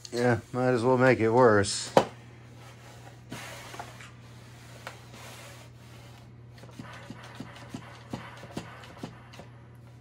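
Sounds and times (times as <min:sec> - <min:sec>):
steam mop humming and hissing: 0:02.3 - 0:10.0.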